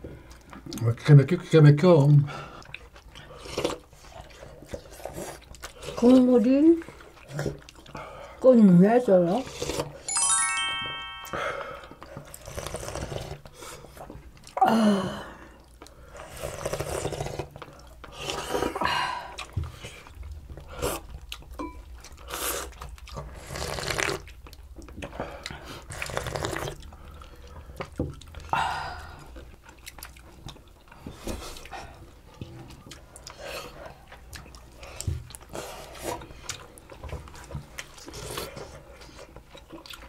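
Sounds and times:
chewing: 0.0s - 10.1s, 11.8s - 14.6s, 15.3s - 40.0s
people slurping broth: 2.3s - 6.2s, 9.4s - 10.0s, 11.9s - 21.2s, 22.1s - 24.4s, 25.0s - 29.5s.

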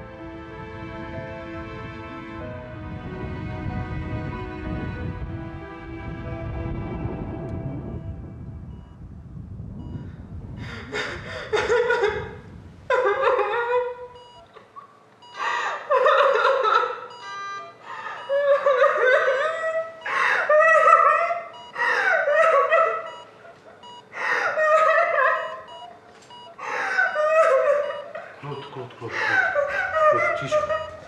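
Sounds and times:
catching breaths: 10.5s - 11.6s, 15.2s - 15.9s, 17.8s - 18.4s, 20.0s - 20.5s, 21.6s - 22.3s, 23.9s - 24.6s, 26.4s - 27.2s, 28.3s - 30.0s
woman sobbing: 10.6s - 14.8s, 15.4s - 17.2s, 17.8s - 31.0s.

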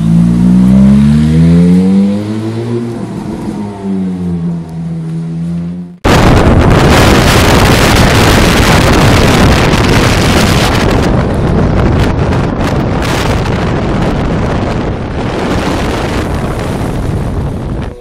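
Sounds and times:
tyre and road noise: 0.0s - 18.0s
wind buffeting microphone: 6.0s - 18.0s.

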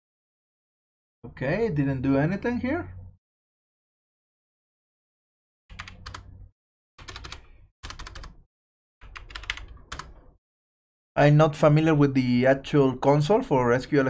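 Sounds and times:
computer keyboard typing: 5.7s - 6.3s, 7.0s - 10.4s.

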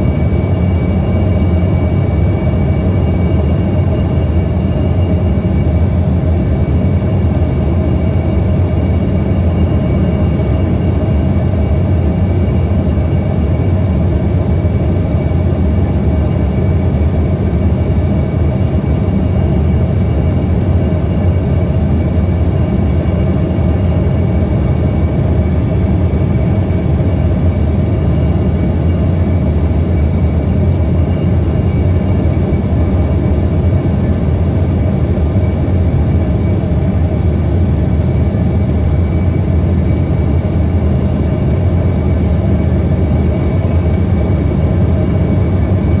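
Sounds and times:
aircraft cabin engine roar: 0.0s - 46.0s
faint steady whines: 0.0s - 46.0s.

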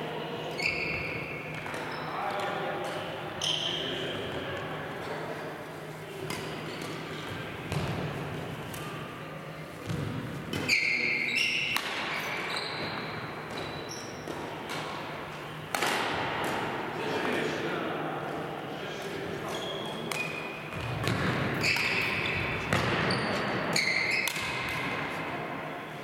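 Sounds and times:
shoe squeaks: 0.5s - 2.4s, 3.4s - 4.1s, 10.5s - 14.3s, 19.4s - 20.7s, 21.6s - 24.6s
racket striking shuttlecock: 11.7s - 12.1s, 15.7s - 16.7s, 20.1s - 23.0s, 24.2s - 25.1s.

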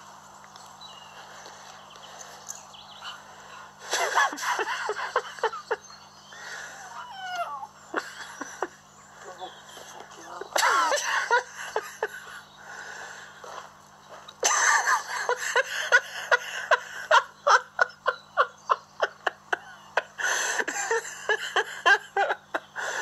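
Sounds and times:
person laughing: 3.8s - 12.5s, 14.4s - 23.0s.

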